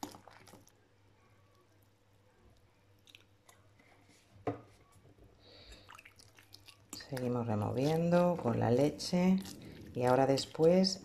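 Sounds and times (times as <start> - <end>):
fork squishing minced meat: 2.6 - 3.9, 5.8 - 11.0.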